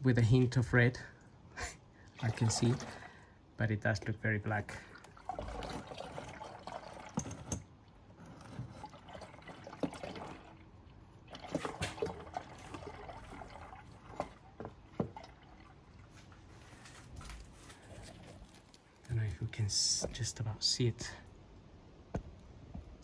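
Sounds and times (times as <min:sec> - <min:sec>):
drips and small splashes: 0:00.1 - 0:20.4
fluid trickling into a funnel: 0:01.9 - 0:17.0.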